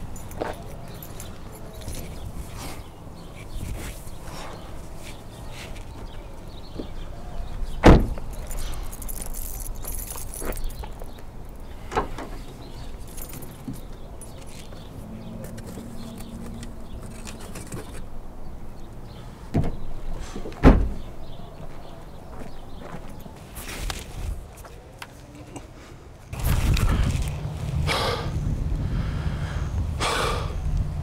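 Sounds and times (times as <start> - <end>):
car door shutting: 7.8 - 8.3, 20.5 - 21.1
trunk lid slamming: 7.8 - 8.3, 20.6 - 21.1.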